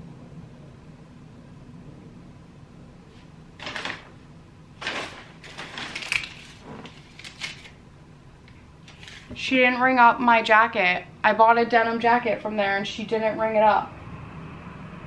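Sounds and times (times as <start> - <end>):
paper bag rustling: 3.6 - 4.2, 4.8 - 7.8, 8.9 - 9.4.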